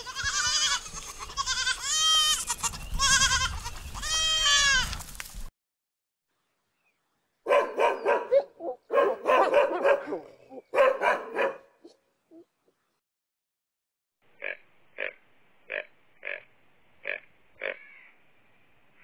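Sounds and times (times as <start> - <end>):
goats bleating: 0.0 - 5.0
dog barking: 7.5 - 12.0.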